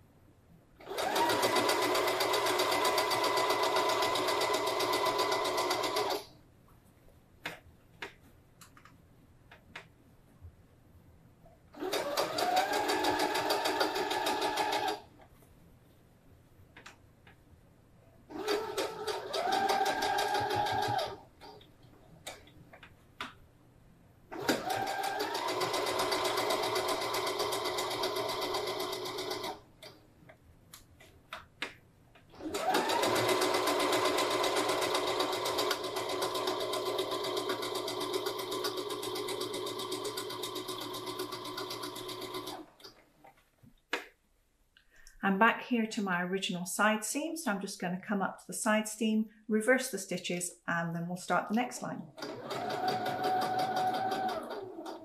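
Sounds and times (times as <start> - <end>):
sewing machine stitching: 0.8 - 6.3, 11.8 - 15.1, 18.3 - 21.7, 24.3 - 30.0, 32.3 - 43.0, 52.2 - 55.0.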